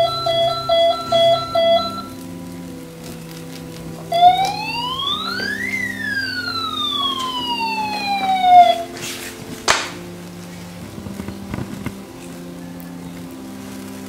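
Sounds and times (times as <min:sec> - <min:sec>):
toy siren falling wail: 0:04.1 - 0:08.9
sharp pop: 0:09.0 - 0:10.0.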